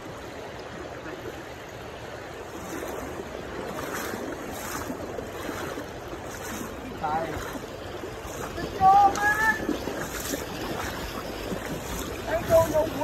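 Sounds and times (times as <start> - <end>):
river water rushing: 0.0 - 13.0
wind buffeting microphone: 2.3 - 13.0.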